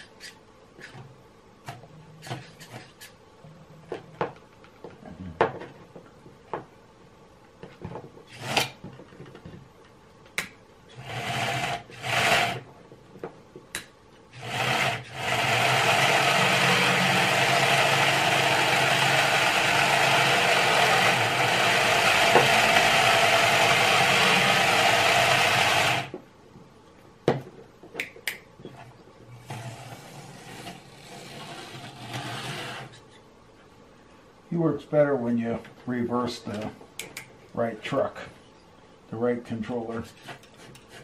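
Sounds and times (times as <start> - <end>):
toy electric motor whirring: 14.3 - 26.1.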